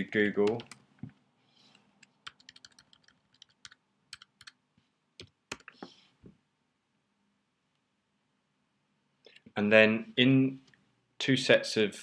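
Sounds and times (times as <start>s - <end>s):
typing on keyboard: 0.4s - 0.8s, 2.2s - 4.6s, 5.2s - 5.8s.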